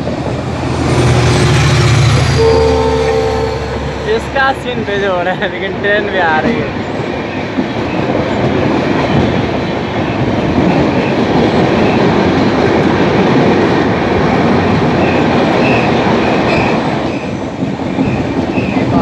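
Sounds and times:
passing train: 0.0 - 19.0
train wheels rumbling on rails: 0.0 - 19.0.

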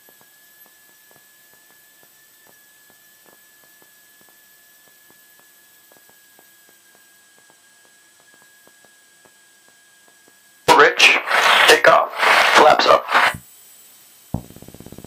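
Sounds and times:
electrical hiss and hum: 10.7 - 13.4
high steady whine: 10.7 - 13.4.

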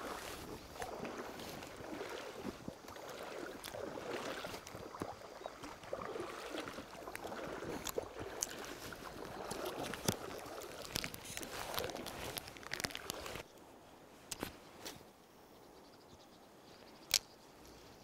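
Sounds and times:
legs sloshing through water: 0.0 - 13.5.

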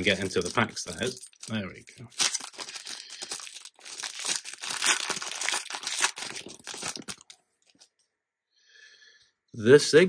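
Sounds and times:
card pack wrapper crinkling: 0.0 - 7.9.

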